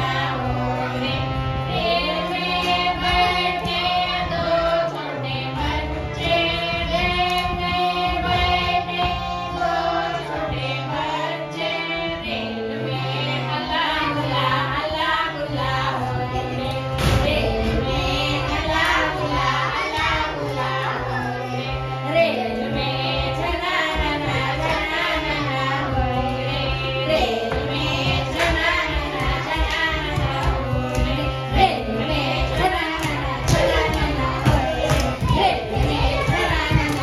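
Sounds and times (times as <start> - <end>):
children singing: 0.0 - 37.0
light percussion: 21.6 - 37.0.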